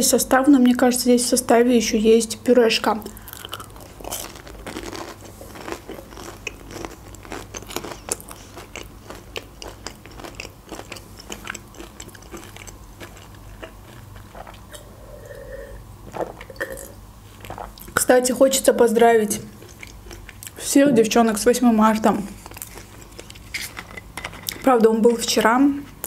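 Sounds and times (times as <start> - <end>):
chewing crunchy food: 3.0 - 18.1, 19.4 - 20.6, 22.3 - 24.7.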